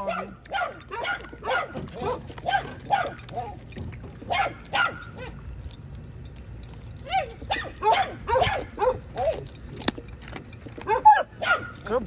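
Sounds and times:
dog barking: 0.0 - 3.5, 4.3 - 5.3, 7.1 - 9.4, 10.9 - 11.8.

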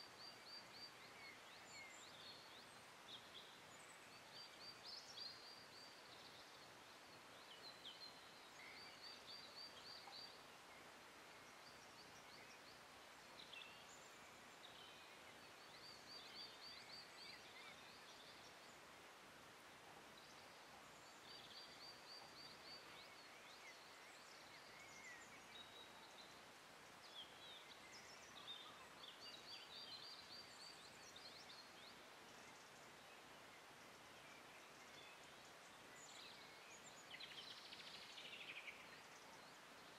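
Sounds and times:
outdoor hiss: 0.0 - 39.9.

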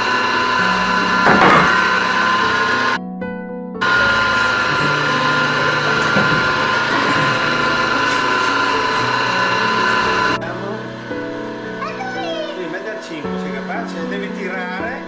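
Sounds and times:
pasta machine whine: 0.0 - 3.0, 3.8 - 15.0.

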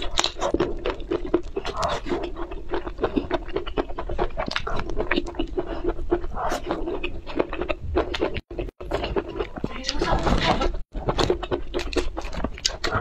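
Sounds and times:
chewing mouth sounds: 0.0 - 10.0, 11.0 - 13.0.

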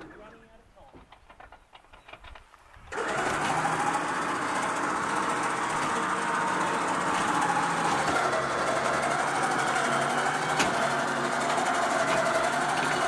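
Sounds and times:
winch humming under load: 2.9 - 13.0.

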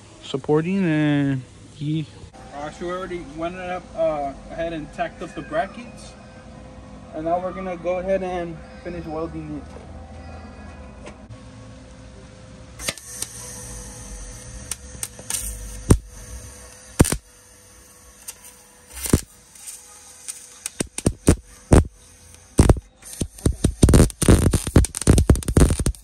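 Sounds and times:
welder arc crackling and popping: 12.8 - 26.0.

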